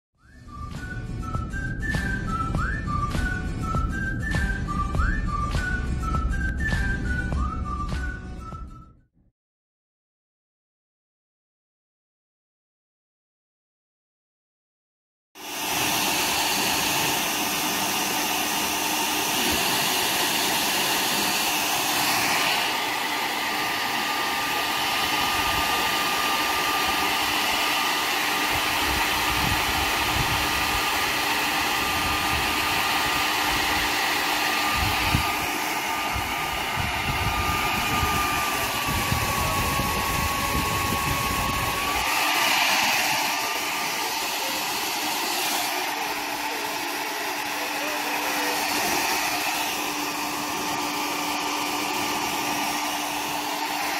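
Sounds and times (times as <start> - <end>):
hair dryer blowing: 0.2 - 8.8, 15.4 - 53.9.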